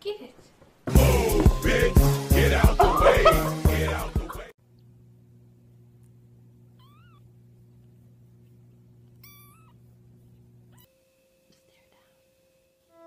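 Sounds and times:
faint steady low hum: 4.6 - 13.0
kitten mewing: 6.8 - 7.2, 9.2 - 9.8.

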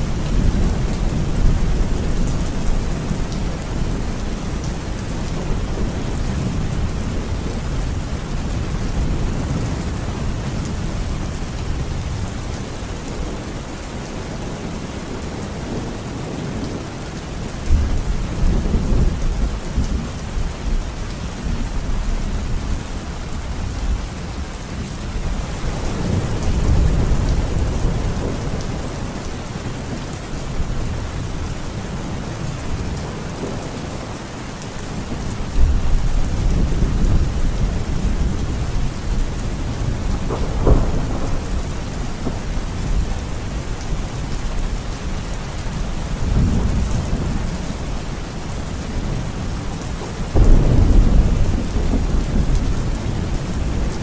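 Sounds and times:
heavy rain: 0.0 - 54.0
thunder rumbling: 34.9 - 49.6, 50.2 - 54.0.

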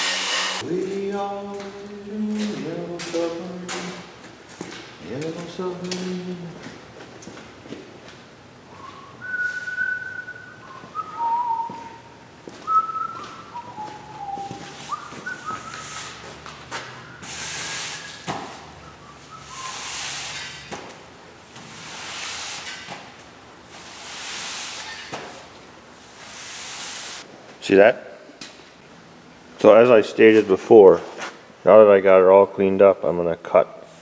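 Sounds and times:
man whistling a tune: 8.7 - 16.2, 18.8 - 19.9.

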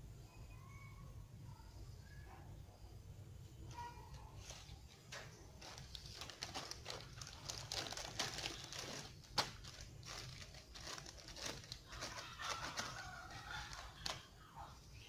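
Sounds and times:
plastic packaging crinkling: 4.4 - 15.0.

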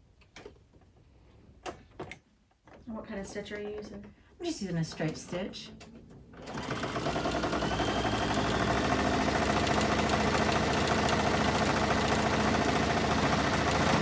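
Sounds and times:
sewing machine stitching: 4.9 - 14.0.

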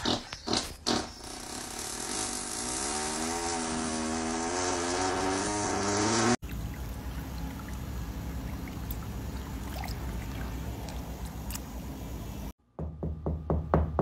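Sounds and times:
fish splashing and slurping: 6.4 - 12.3
gentle pond water: 6.4 - 12.5
knocking on wooden door: 12.8 - 14.0.

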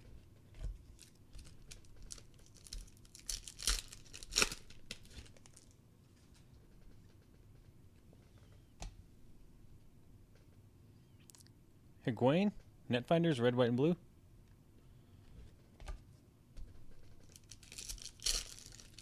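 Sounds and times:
foil wrapper crinkling: 1.0 - 5.8, 17.2 - 19.0.

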